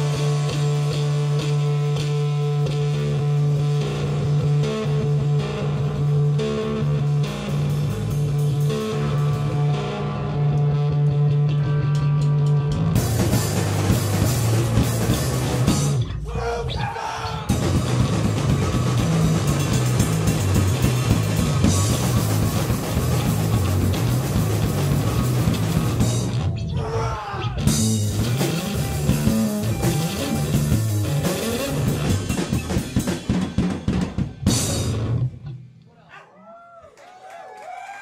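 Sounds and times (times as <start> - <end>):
drums and cymbals: 0.0 - 9.8, 11.8 - 16.4, 17.3 - 26.6, 27.6 - 35.5
live rock band playing: 0.0 - 16.2, 17.5 - 26.7, 27.6 - 35.7
sparse guitar notes: 0.0 - 35.7.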